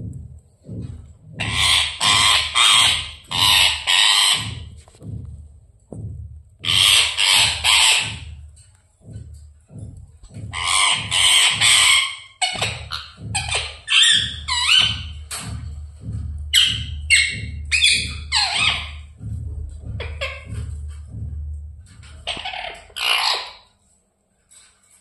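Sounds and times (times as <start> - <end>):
parrot squawking: 1.4 - 4.8, 6.6 - 8.4, 10.3 - 15.6, 16.5 - 19.2, 19.8 - 20.8, 22.1 - 23.7.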